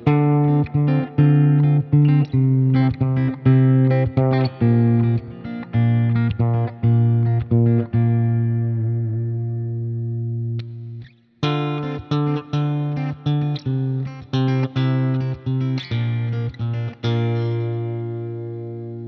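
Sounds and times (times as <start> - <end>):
electric guitar picking: 0.0 - 19.0.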